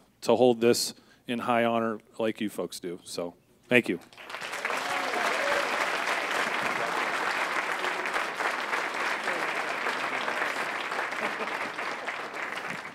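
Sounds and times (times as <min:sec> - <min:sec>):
audience applauding: 0:04.1 - 0:12.9.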